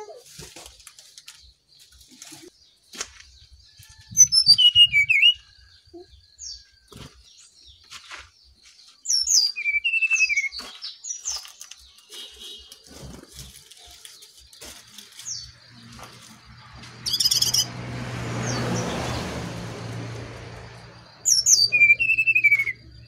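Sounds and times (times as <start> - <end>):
bird whistling song: 3.9 - 6.6, 9.1 - 12.8, 17.0 - 17.7, 21.1 - 23.0.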